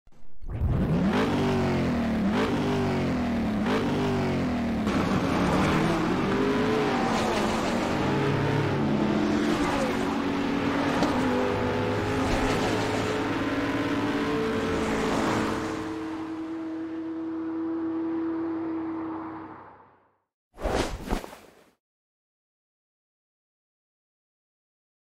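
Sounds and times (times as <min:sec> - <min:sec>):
race car engine accelerating: 0:00.5 - 0:19.8.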